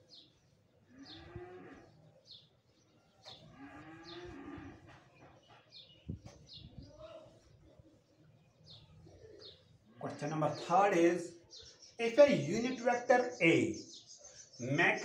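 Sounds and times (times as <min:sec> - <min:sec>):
bird chirping: 0:00.0 - 0:15.0
cow mooing: 0:00.9 - 0:01.9, 0:03.5 - 0:04.9.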